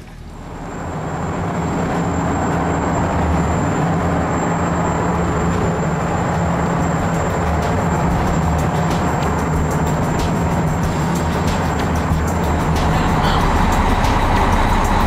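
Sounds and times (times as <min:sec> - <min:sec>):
boat engines droning: 0:00.0 - 0:15.0
thin high whine: 0:00.0 - 0:15.0.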